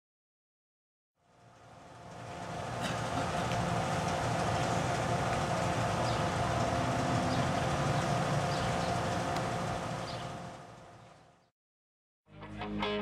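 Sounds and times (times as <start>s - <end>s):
steady mechanical hum: 1.2s - 11.5s.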